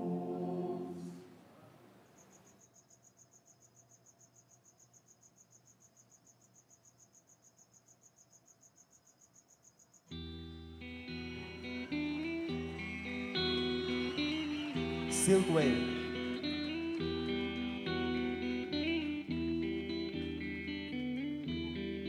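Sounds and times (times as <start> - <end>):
men chanting: 0.0 - 1.3
faint insect chirping: 1.6 - 10.9.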